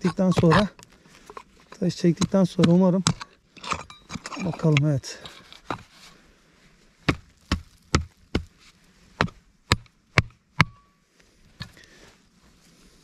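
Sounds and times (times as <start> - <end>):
pick striking stony soil: 0.0 - 6.0, 7.0 - 11.0.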